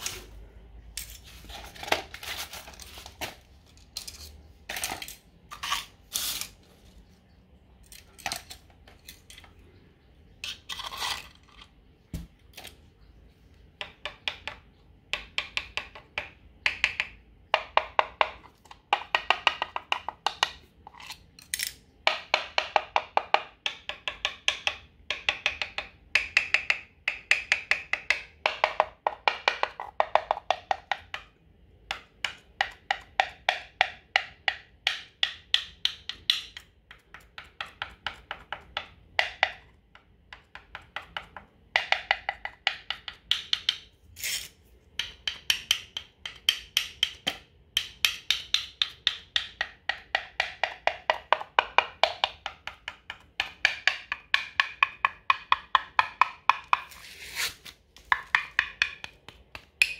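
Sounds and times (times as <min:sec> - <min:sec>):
screwdriver handle tapping tiles: 0:13.8 - 0:43.8, 0:45.0 - 0:57.0, 0:58.0 - 0:59.9.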